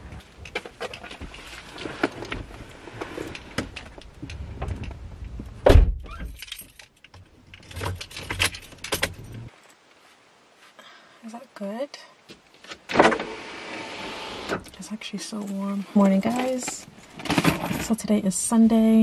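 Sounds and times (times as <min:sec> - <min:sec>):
car keys jangling: 0:06.1 - 0:09.5.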